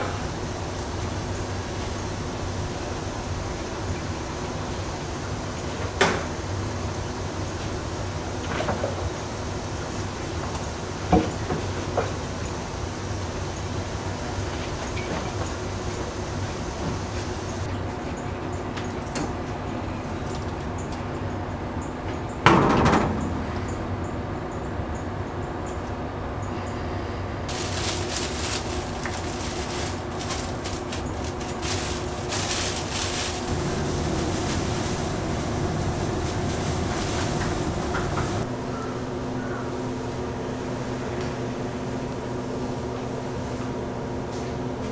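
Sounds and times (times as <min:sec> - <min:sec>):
steady hiss: 0:00.0 - 0:17.7, 0:27.5 - 0:38.5
machinery hum: 0:00.0 - 0:44.9.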